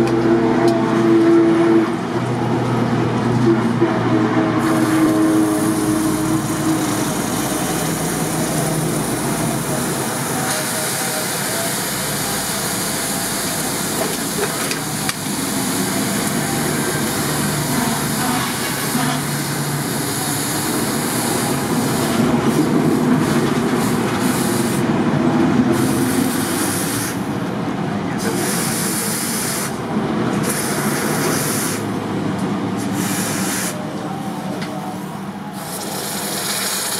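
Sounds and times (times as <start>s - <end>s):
water hissing on hot steel: 4.6s - 24.8s, 25.7s - 27.2s, 32.9s - 33.8s, 35.5s - 36.9s.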